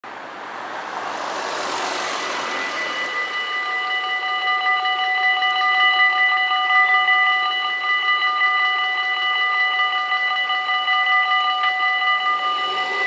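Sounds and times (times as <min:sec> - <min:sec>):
car driving past: 0:00.1 - 0:04.2
level crossing bells ringing: 0:01.2 - 0:13.0.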